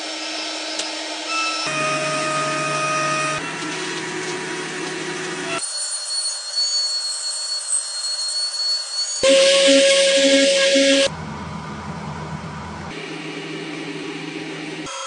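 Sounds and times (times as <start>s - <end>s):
electric router motor whine: 0.6s - 5.6s.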